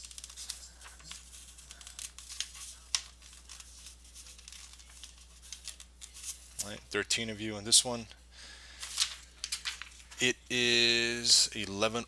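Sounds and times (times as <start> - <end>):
paper rustling and crinkling: 0.0 - 6.9, 8.8 - 10.2.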